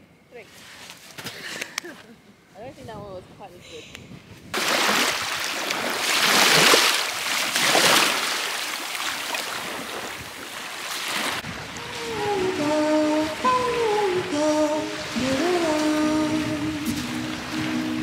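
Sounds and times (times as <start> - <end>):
wind buffeting microphone: 2.6 - 6.7, 11.2 - 18.0
small waves washing on sand: 4.6 - 18.0
melody: 11.8 - 18.0.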